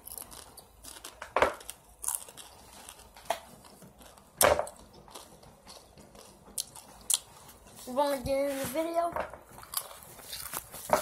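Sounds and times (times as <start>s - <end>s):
snack bag crinkling: 0.0s - 4.3s, 9.6s - 11.0s
chips crunching: 0.0s - 7.4s, 9.6s - 11.0s.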